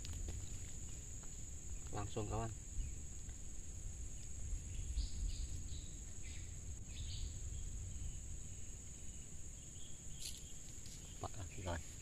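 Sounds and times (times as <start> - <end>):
high-pitched insect drone: 0.0 - 12.0
bird chirps: 4.1 - 11.9.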